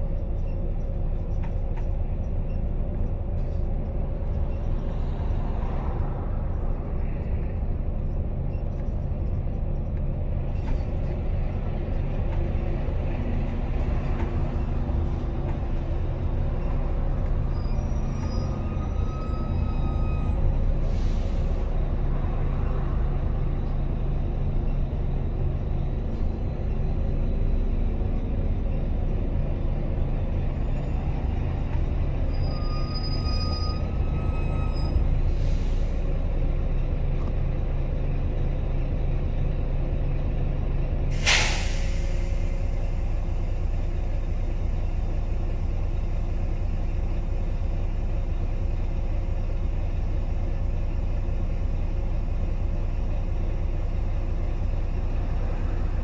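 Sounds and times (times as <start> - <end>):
bus diesel engine droning: 0.0 - 56.0
high brake squeals: 16.5 - 21.8, 30.4 - 36.1
air brakes hissing: 17.6 - 21.8, 32.4 - 36.3, 41.1 - 44.2.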